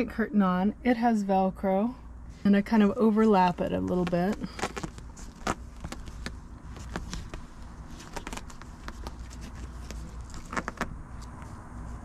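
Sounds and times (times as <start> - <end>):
low steady hum: 0.0 - 12.0
curtain fabric rustling: 3.2 - 12.0
velcro crackles and clicks: 4.0 - 12.0.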